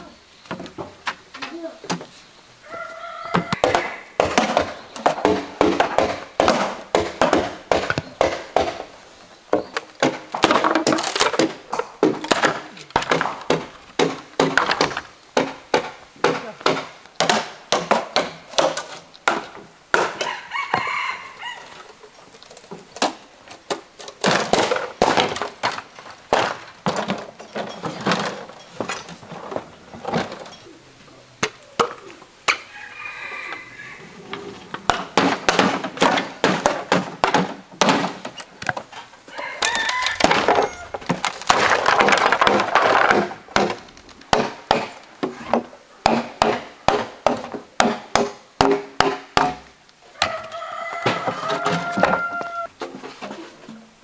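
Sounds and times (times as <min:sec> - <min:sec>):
rooster crowing: 0:02.6 - 0:04.2, 0:20.2 - 0:21.8, 0:32.6 - 0:34.4, 0:39.3 - 0:41.1, 0:50.1 - 0:52.7
wooden knocks on bamboo: 0:09.5 - 0:21.0, 0:39.6 - 0:53.0.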